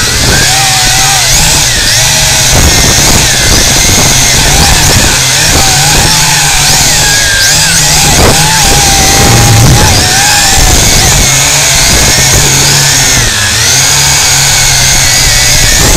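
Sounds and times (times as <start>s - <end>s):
drone propellers buzzing: 0.0s - 15.9s.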